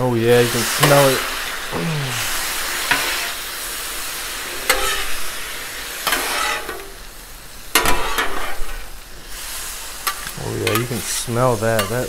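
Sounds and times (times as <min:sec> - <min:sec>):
food sizzling on griddle: 0:00.0 - 0:12.0
metal spatula scraping steel: 0:02.9 - 0:03.4, 0:04.5 - 0:05.2, 0:06.0 - 0:06.9, 0:07.8 - 0:08.8.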